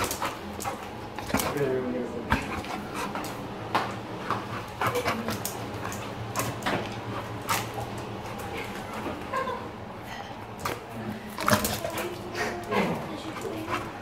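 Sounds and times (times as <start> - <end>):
brush and claws clattering on tiles: 0.0 - 9.5.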